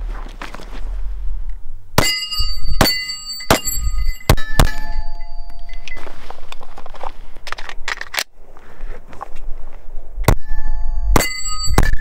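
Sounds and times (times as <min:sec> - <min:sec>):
pistol shots with ringing: 0:02.0 - 0:05.4, 0:11.2 - 0:12.0.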